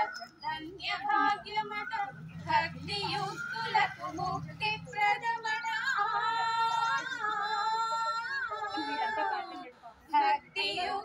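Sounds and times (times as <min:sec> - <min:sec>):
women singing together: 0:00.0 - 0:11.0.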